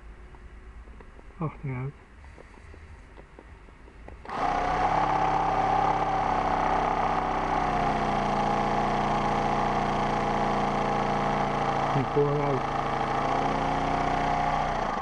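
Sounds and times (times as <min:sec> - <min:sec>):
model steam engine running: 0:04.3 - 0:15.0.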